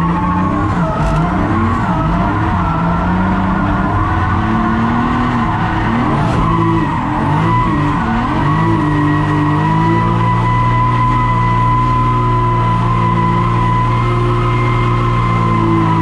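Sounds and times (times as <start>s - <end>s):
car engine revving: 0.0s - 16.0s
tyres skidding and squealing: 0.0s - 16.0s.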